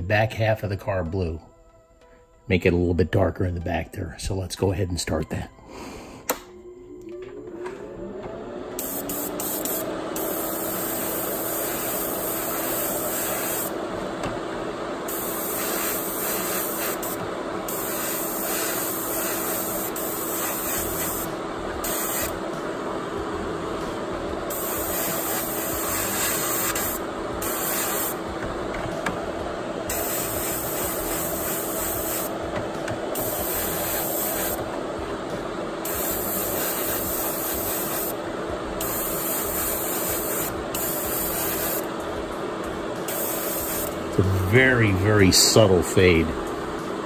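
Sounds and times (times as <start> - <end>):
compressor humming: 3.6 - 47.0
airbrush spraying hiss: 8.8 - 13.8, 15.1 - 22.4, 24.5 - 28.2, 29.9 - 32.4, 33.1 - 34.7, 35.8 - 38.2, 38.8 - 41.9, 43.0 - 44.1.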